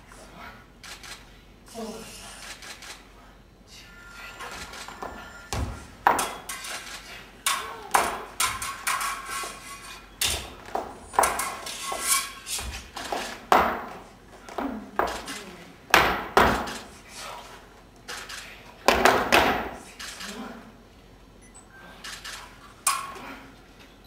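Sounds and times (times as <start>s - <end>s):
flamenco footwork: 5.5s - 6.4s, 10.3s - 16.8s.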